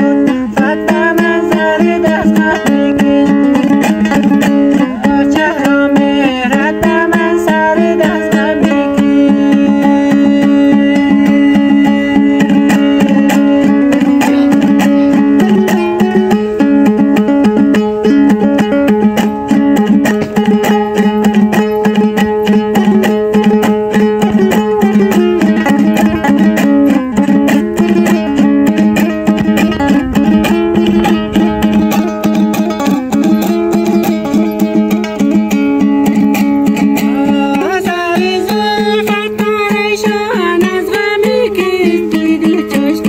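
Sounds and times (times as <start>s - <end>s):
person singing: 0.0s - 16.2s, 36.8s - 43.0s
lute strummed rapidly: 0.0s - 43.0s.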